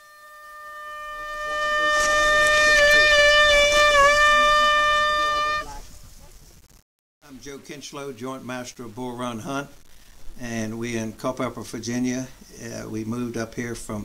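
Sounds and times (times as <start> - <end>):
hunting horn long note: 0.0 - 5.8.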